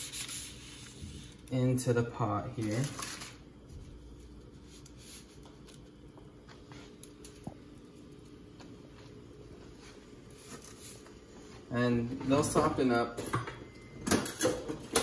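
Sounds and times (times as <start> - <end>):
steady low hum: 0.0 - 15.0
handling dry noodles: 2.5 - 3.4.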